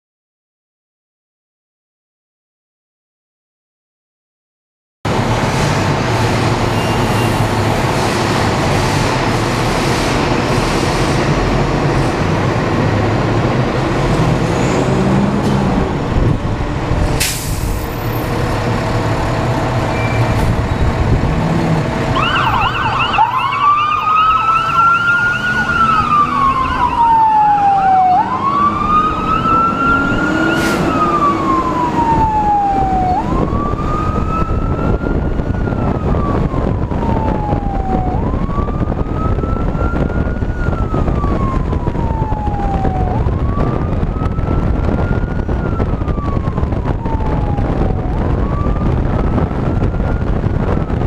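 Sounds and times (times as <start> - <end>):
fire engine accelerating: 5.1 - 51.0
siren wailing: 22.0 - 51.0.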